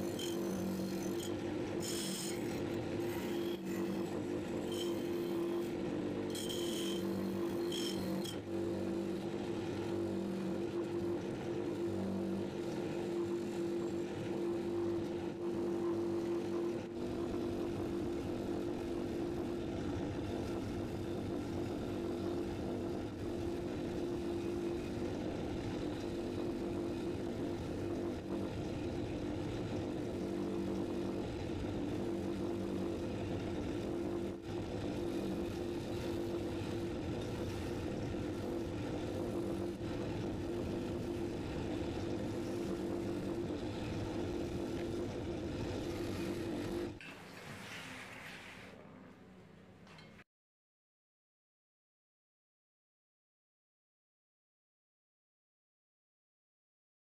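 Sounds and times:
grinding wheel on steel parts: 0:00.0 - 0:09.4, 0:21.2 - 0:50.2
bench grinder motor humming: 0:00.0 - 0:47.0.

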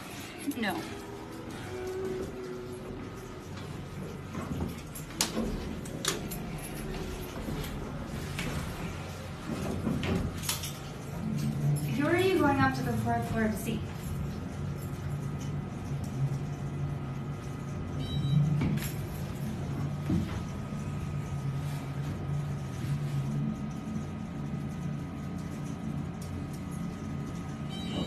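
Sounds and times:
elevator hum with whine: 0:00.0 - 0:28.0.

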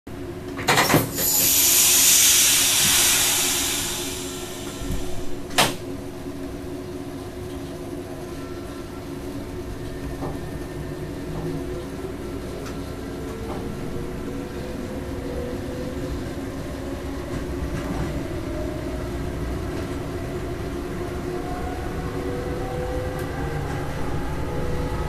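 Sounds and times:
compressed air hiss: 0:01.2 - 0:05.4
train clunk: 0:02.6 - 0:05.9.

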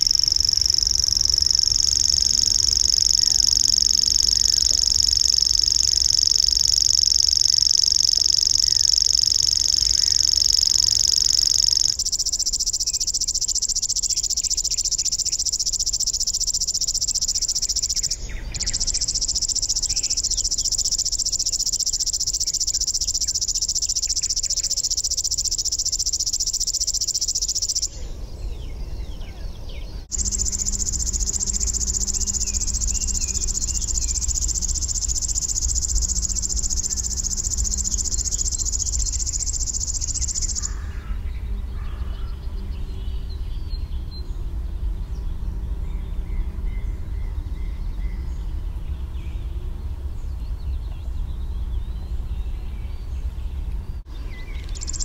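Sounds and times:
warbler reeling trill: 0:00.0 - 0:28.0, 0:30.0 - 0:41.2, 0:54.3 - 0:55.0.

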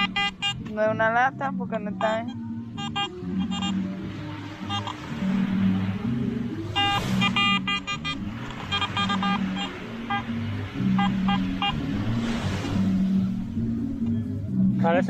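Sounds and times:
metal detector beeps: 0:00.0 - 0:00.7, 0:02.0 - 0:03.8, 0:04.7 - 0:05.0, 0:06.8 - 0:10.3, 0:11.0 - 0:11.8
background music: 0:00.0 - 0:15.0.

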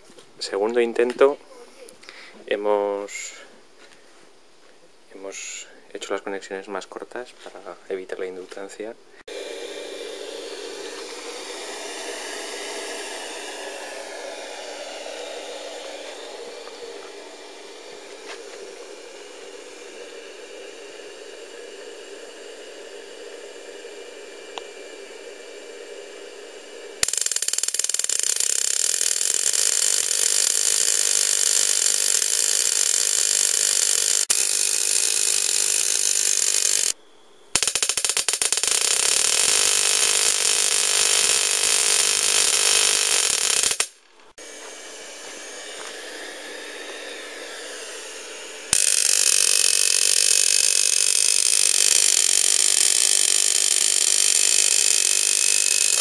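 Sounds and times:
tesla coil buzzing crackle: 0:09.3 - 0:44.3, 0:48.6 - 0:56.0.

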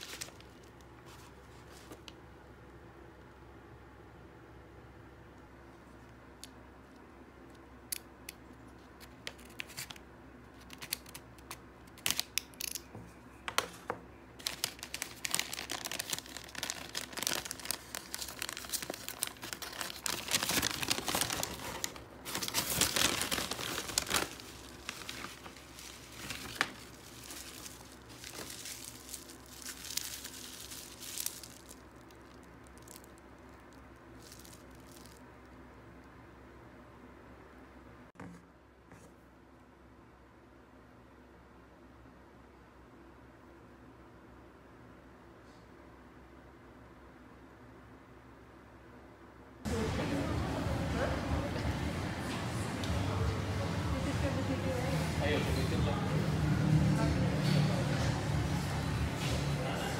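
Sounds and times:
paper bag crinkling and rustling: 0:00.0 - 0:02.0, 0:14.4 - 0:35.2.

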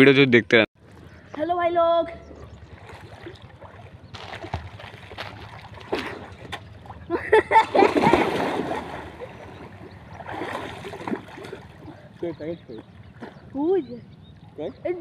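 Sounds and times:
water sloshing: 0:02.1 - 0:15.0
swimmers splashing: 0:02.2 - 0:13.8
person jumping into pool splash: 0:04.2 - 0:06.6, 0:07.6 - 0:09.3, 0:10.3 - 0:11.6.

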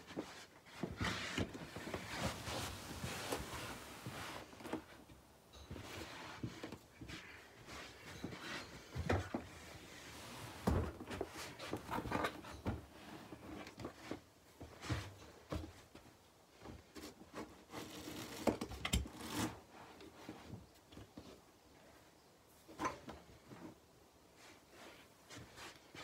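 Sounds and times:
quilt rustling: 0:00.1 - 0:05.0, 0:09.5 - 0:12.3.

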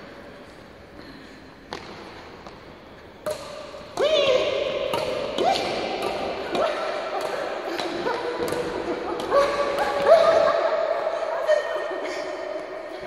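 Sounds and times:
shoes squeaking on hall floor: 0:01.5 - 0:04.3.

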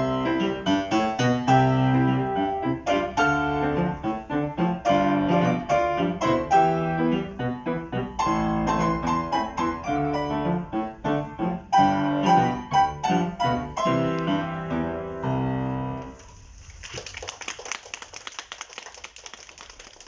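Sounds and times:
piano duet playing chords: 0:00.0 - 0:16.2
audience applause: 0:16.7 - 0:20.0.

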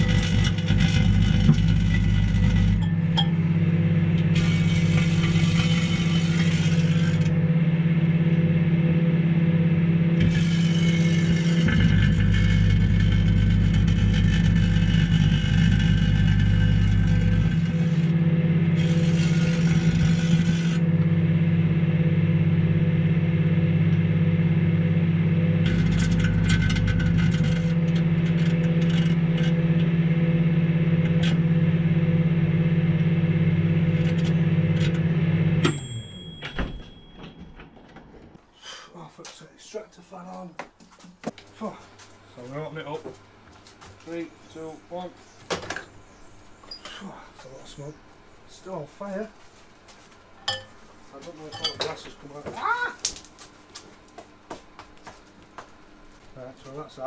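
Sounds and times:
microwave oven humming: 0:00.0 - 0:37.8, 0:51.5 - 0:56.5.

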